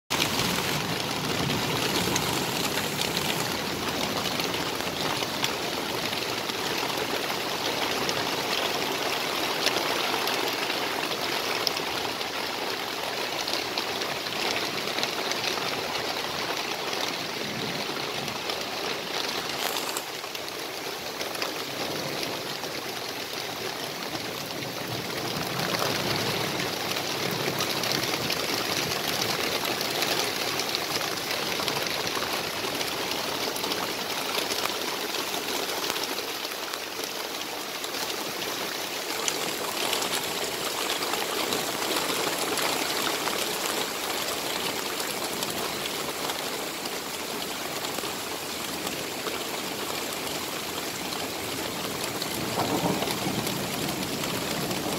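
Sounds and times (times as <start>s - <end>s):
heavy rain pouring: 0.1s - 54.9s.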